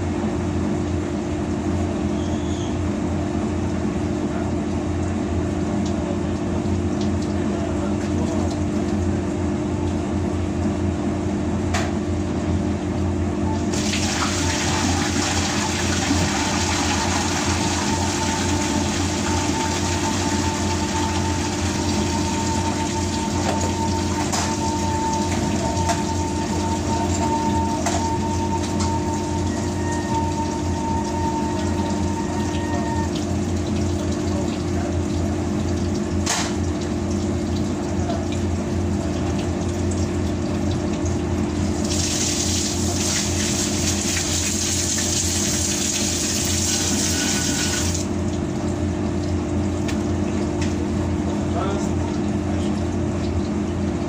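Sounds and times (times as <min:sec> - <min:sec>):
machinery hum: 0:00.0 - 0:39.2
water running through a hose: 0:13.7 - 0:50.4.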